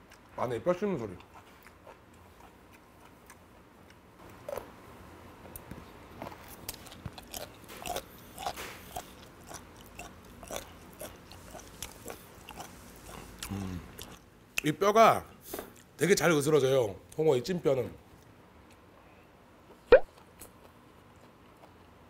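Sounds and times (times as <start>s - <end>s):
chewing with crunching bones: 5.4s - 14.2s.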